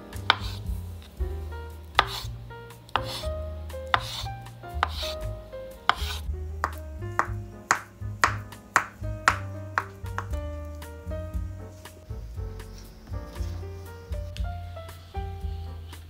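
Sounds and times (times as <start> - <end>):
soft background music: 0.0 - 16.0
knife chopping on wooden board: 0.2 - 0.7, 2.0 - 2.3, 2.9 - 3.3, 3.9 - 5.2, 5.9 - 10.4
knife slicing hiss: 2.0 - 2.3, 2.9 - 3.3, 3.9 - 5.3, 5.9 - 6.8.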